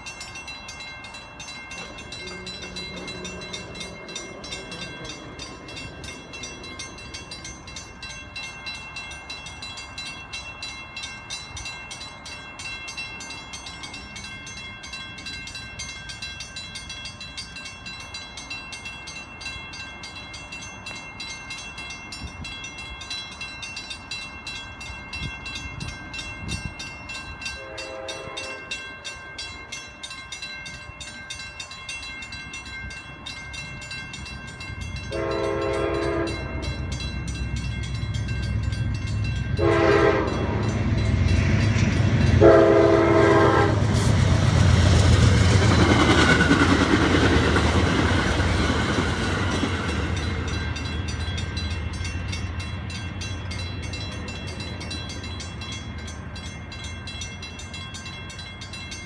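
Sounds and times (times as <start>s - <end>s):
crossing warning bells ringing: 0.0s - 59.0s
train horn: 2.2s - 3.9s, 27.5s - 28.8s, 35.1s - 36.8s, 39.6s - 40.8s, 42.3s - 44.1s.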